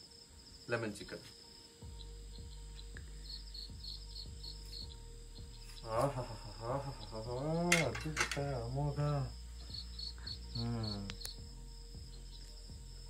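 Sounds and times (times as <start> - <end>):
crickets chirping: 0.0 - 13.0
man's voice: 5.8 - 9.4, 10.5 - 11.2
sharp clicks: 11.1 - 11.4.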